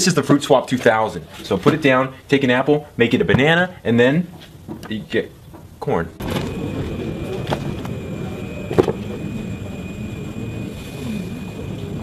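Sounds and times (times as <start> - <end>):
airliner cabin noise: 6.2 - 12.0.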